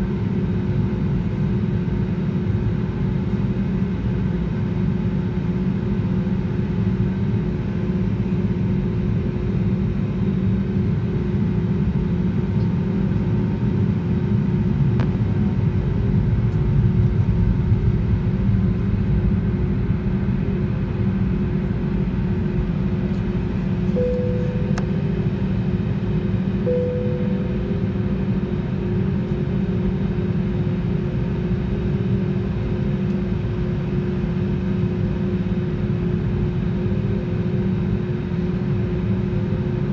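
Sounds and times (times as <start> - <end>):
aircraft cabin engine rumble: 0.0 - 39.9
short cabin tones: 23.9 - 25.2, 26.6 - 28.0.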